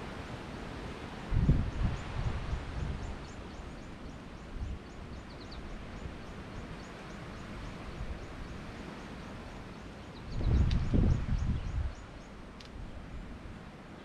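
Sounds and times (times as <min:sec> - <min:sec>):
wind blowing over microphone: 0:00.0 - 0:13.7
wind through vegetation: 0:00.0 - 0:14.0.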